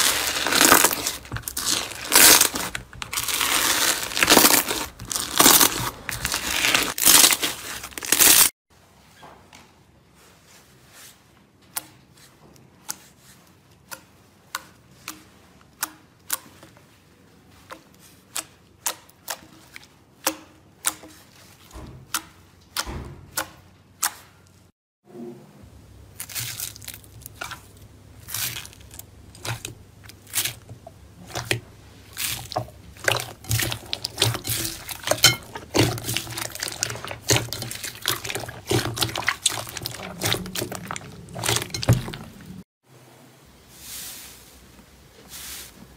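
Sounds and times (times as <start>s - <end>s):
slime squelching in water: 0.0s - 8.5s, 26.2s - 42.6s.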